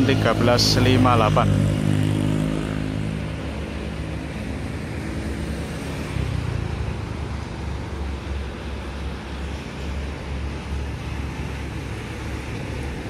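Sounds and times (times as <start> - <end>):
diesel locomotive rumble: 0.0 - 1.6
road traffic hiss: 0.0 - 13.0.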